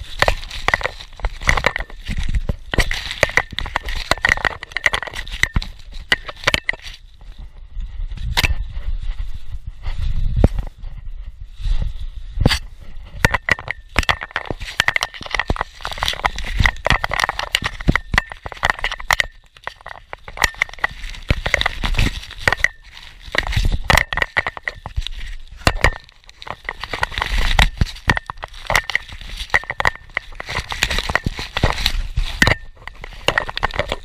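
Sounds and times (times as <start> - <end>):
bubble wrap crinkling and snapping: 0.0 - 7.0, 13.8 - 34.0.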